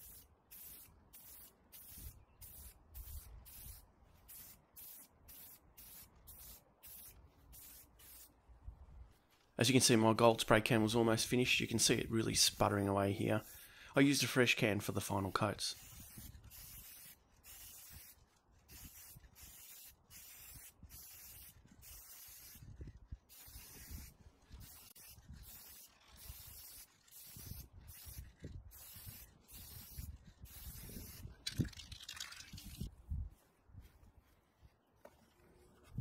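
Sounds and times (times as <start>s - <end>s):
spray can sputtering hisses: 0.0s - 8.3s, 15.7s - 32.9s.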